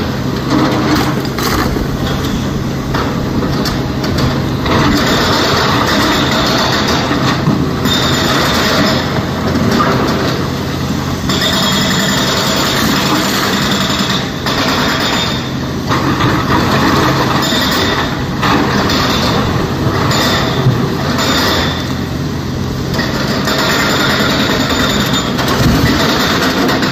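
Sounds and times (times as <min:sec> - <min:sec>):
excavator diesel engine hum: 0:00.0 - 0:26.9.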